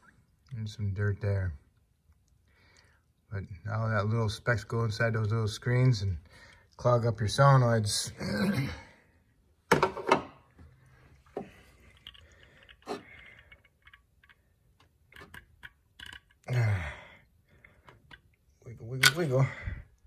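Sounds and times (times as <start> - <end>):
metal parts clicking and tapping: 11.8 - 16.5.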